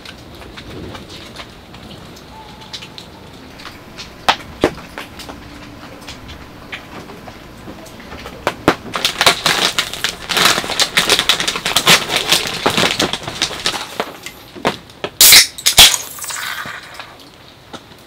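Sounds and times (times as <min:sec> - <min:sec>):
plastic snack bag crinkling: 0:03.5 - 0:14.6, 0:15.6 - 0:17.4
beer can opening: 0:15.2 - 0:17.2.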